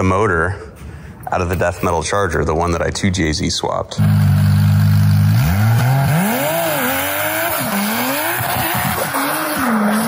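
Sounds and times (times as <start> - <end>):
car engine revving: 4.0 - 10.0.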